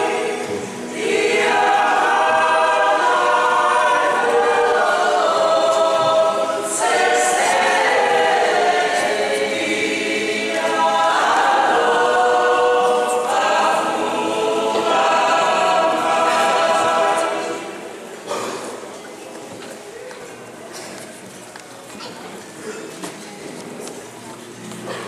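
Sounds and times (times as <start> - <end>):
mixed choir singing unaccompanied: 0.0 - 18.4.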